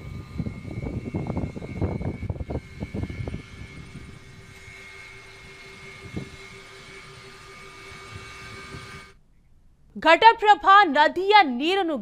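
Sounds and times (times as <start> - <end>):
wind buffeting microphone: 0.0 - 7.3, 7.9 - 9.1
drone propellers humming: 0.0 - 9.2.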